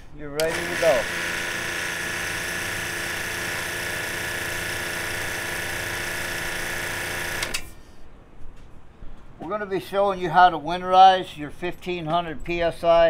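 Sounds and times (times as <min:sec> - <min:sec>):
electric pump running: 0:00.0 - 0:07.8.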